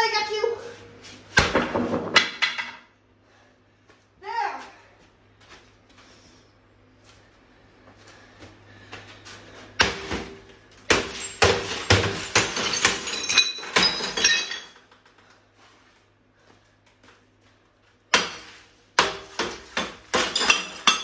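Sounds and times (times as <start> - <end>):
hammer smashing glass: 9.8 - 14.8, 18.1 - 21.0
broken glass clinking: 10.0 - 14.9, 20.1 - 21.0.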